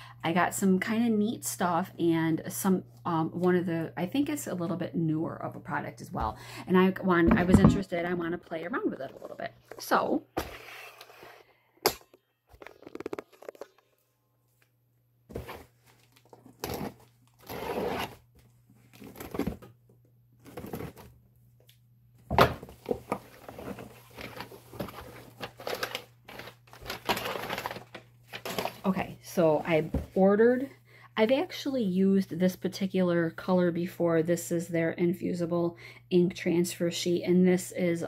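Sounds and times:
packing paper rustling: 22.9s - 28.9s
packing tape tearing: 25.4s - 28.8s.

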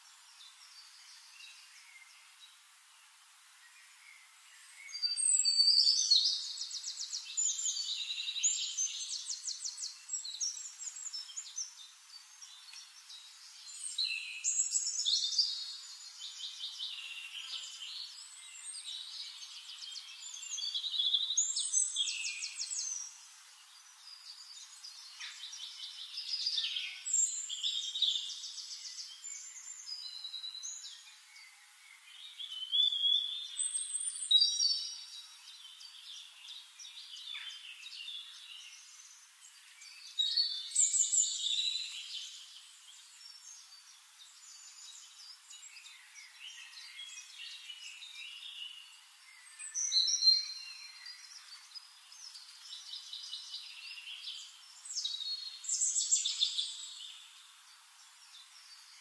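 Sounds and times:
songbird trilling and chirping: 4.6s - 57.6s.

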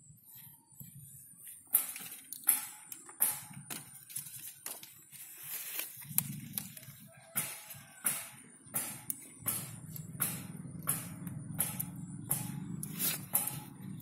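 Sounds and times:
leaves rustling: 3.6s - 8.3s, 12.8s - 13.6s
buds snapping: 5.7s - 13.7s.

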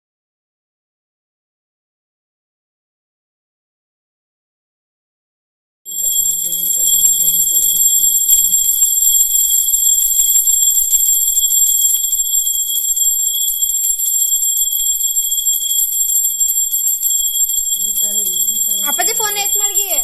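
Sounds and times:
hand bell ringing rapidly: 5.9s - 20.0s.

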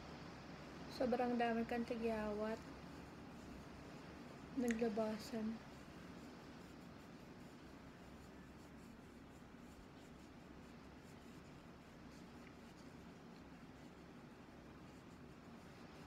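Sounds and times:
low room hum: 0.0s - 16.0s
light rubbing and ticking: 1.2s - 16.0s.

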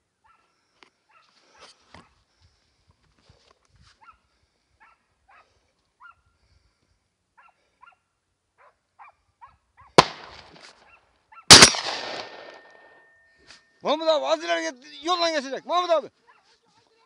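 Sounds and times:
dogs barking and yelping: 8.6s - 10.0s
gunshot echoing: 10.0s - 10.7s, 11.5s - 13.0s.

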